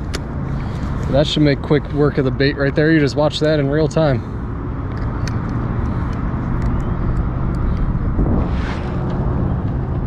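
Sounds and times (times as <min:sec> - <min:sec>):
light handling clicks: 0:04.9 - 0:07.9
wind buffeting microphone: 0:05.7 - 0:10.0.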